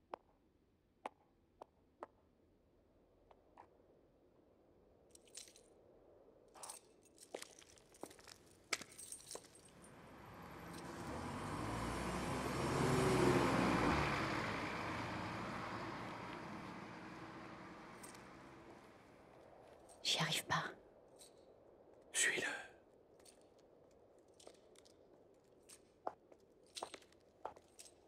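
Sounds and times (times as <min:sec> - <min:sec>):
car passing by: 0:09.7 - 0:19.5.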